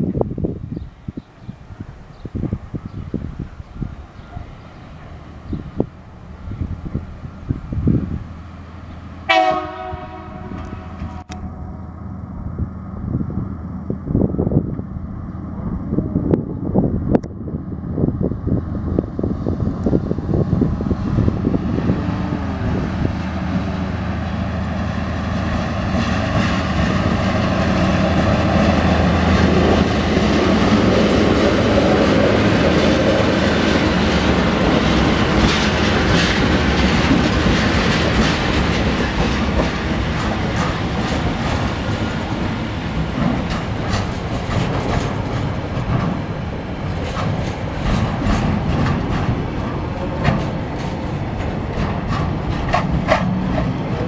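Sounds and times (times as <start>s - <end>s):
diesel locomotive engines droning: 0.0s - 54.0s
train wheels clickety-clack: 25.2s - 54.0s.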